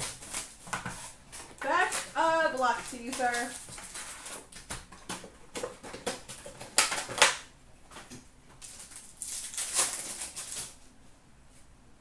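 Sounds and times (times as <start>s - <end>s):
foil wrapper crinkling and tearing: 0.0s - 10.9s.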